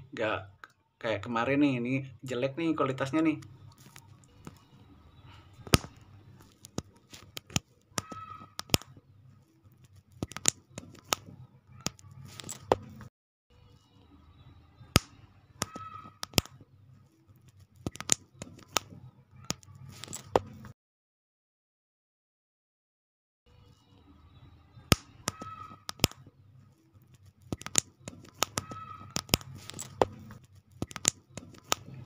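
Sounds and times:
soft handling noise: 3.3 - 13.1, 26.0 - 32.0
plastic bricks clicking together: 30.8 - 31.9.

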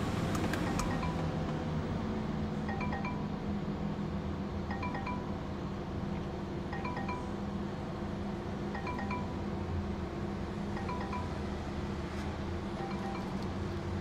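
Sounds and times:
car warning chime: 0.5 - 1.8, 2.6 - 3.6, 4.7 - 5.6, 6.7 - 7.9, 8.8 - 9.8, 10.7 - 12.0, 12.7 - 14.0.

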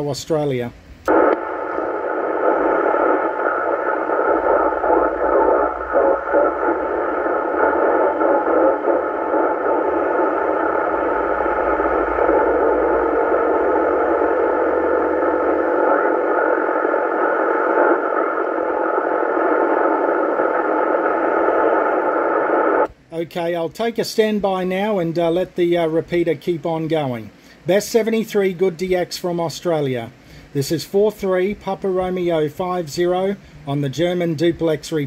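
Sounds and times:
radio static hiss: 0.0 - 35.0
faint steady tone: 1.0 - 22.9.

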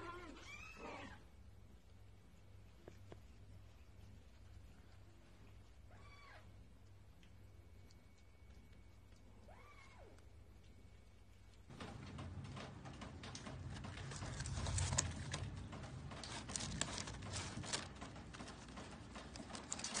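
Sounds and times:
paper packaging rustling: 11.7 - 20.0.

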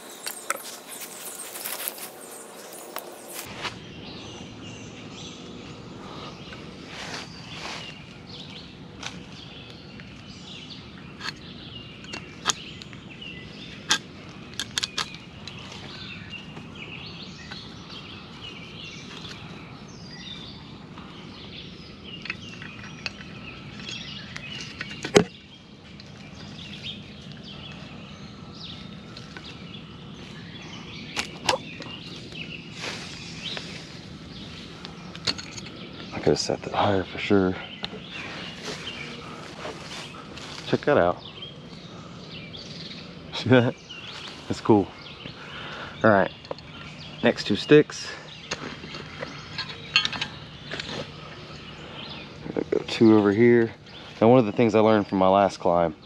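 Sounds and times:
rope and strap rustling: 0.0 - 3.8, 37.9 - 40.9
birds chirping faintly: 0.0 - 56.0.

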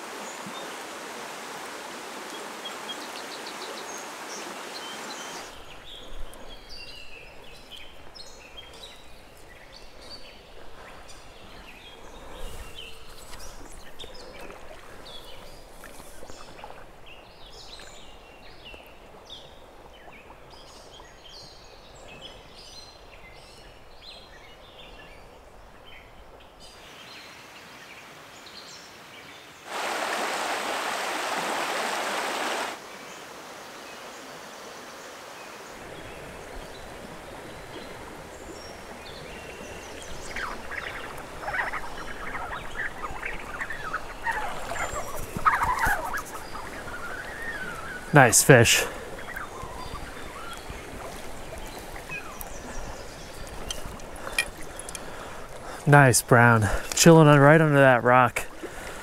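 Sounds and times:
rushing water of a riffle: 0.0 - 8.2, 29.6 - 59.0
creek water running: 0.0 - 59.0
songbirds chirping: 1.6 - 29.7, 32.7 - 59.0.

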